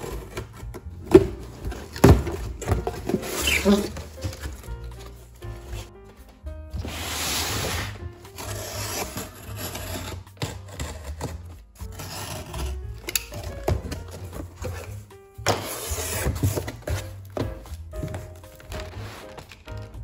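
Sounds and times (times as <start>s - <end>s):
box flaps pulled open: 0.0s - 5.0s
background music: 0.0s - 20.0s
cardboard box sliding on table: 6.8s - 10.2s
box cutter slitting tape: 7.4s - 14.0s.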